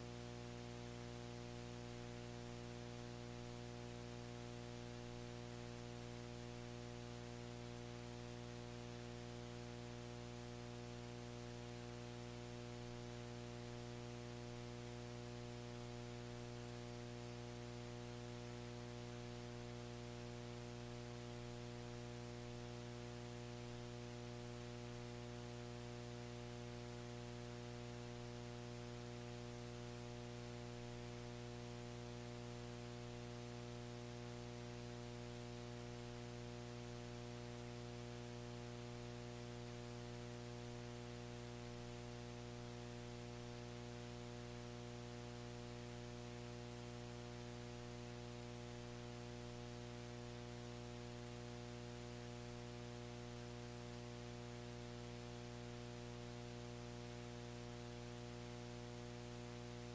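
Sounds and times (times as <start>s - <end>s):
electrical mains hum: 0.0s - 59.9s
faint background hiss: 0.0s - 59.9s.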